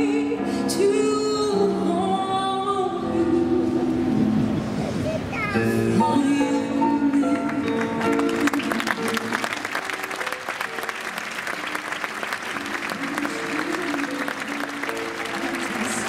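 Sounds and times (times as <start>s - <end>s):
music with sustained notes: 5.6s - 16.0s
audience applauding: 7.4s - 16.0s.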